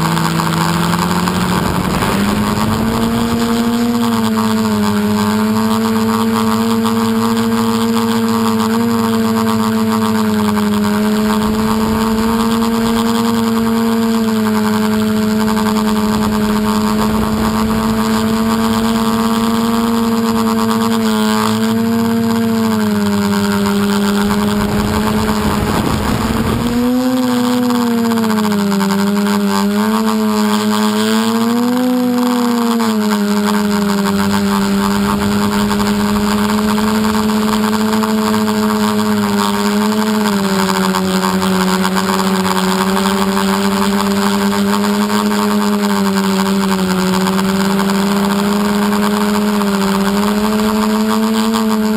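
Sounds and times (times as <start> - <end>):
rush of wind noise: 0.0 - 5.4, 10.8 - 20.4, 23.2 - 28.2
drone motors humming: 0.0 - 51.9.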